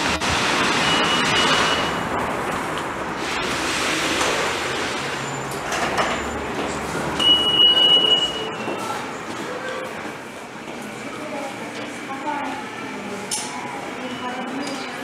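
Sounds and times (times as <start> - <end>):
crowd hubbub: 0.0 - 15.0
high steady beep: 7.2 - 8.7.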